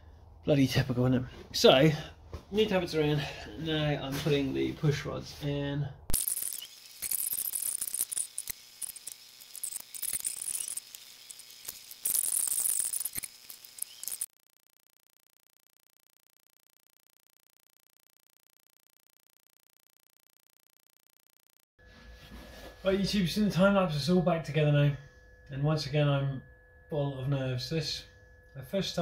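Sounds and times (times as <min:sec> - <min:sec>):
faint high whine: 0:06.1 - 0:29.0.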